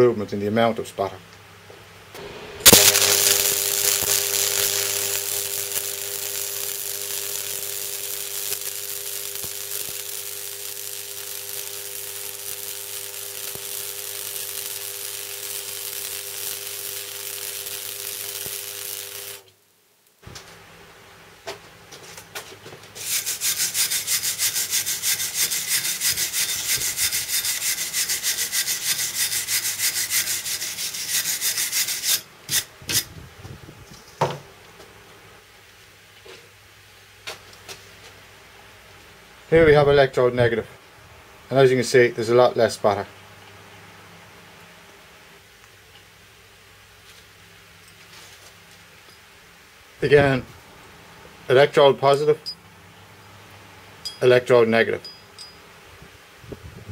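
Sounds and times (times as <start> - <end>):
welding arc crackling: 2.2 - 20.5, 23.0 - 33.1
welding arc hissing and humming: 2.2 - 20.6, 23.0 - 33.1.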